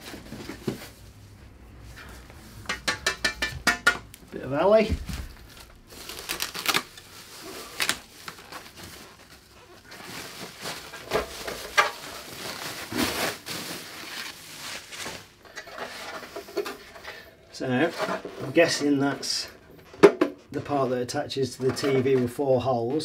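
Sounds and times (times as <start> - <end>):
packaging rustling: 4.6 - 17.0.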